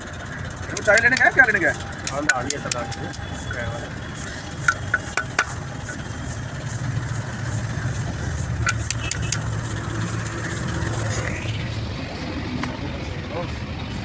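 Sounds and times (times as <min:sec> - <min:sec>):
engine idling hum: 0:00.0 - 0:14.0
hammer striking metal: 0:00.7 - 0:06.0, 0:08.6 - 0:10.2.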